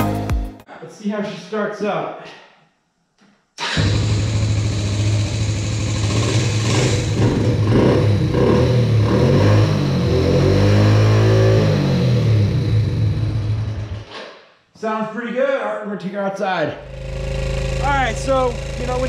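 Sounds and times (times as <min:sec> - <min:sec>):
small engine revving: 0:03.6 - 0:14.1, 0:16.8 - 0:19.0.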